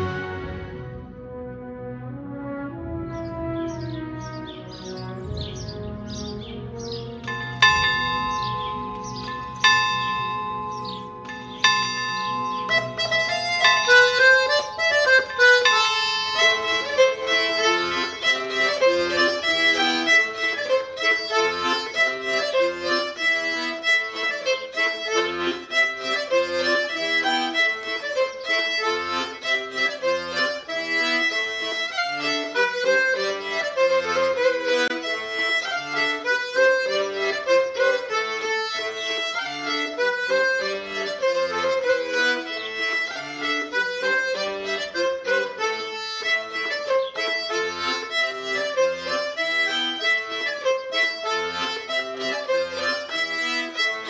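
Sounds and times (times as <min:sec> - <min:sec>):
accordion dance tune: 0:00.0 - 0:01.1, 0:03.7 - 0:54.0
fiddle: 0:00.0 - 0:01.2, 0:06.2 - 0:54.0
low bass notes: 0:00.0 - 0:19.5.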